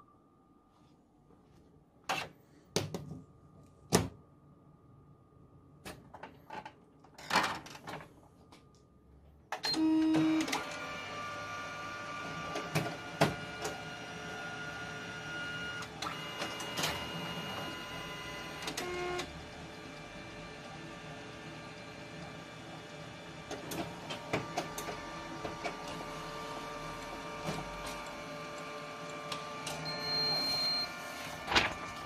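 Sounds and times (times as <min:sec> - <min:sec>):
copier whirring and clicking: 0:09.5 - 0:32.0
copier humming: 0:09.7 - 0:32.0.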